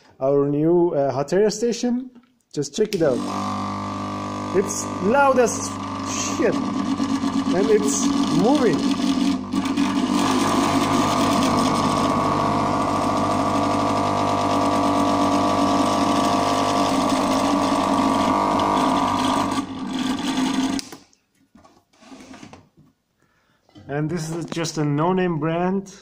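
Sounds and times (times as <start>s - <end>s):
hot air station buzzing: 3.1s - 20.8s.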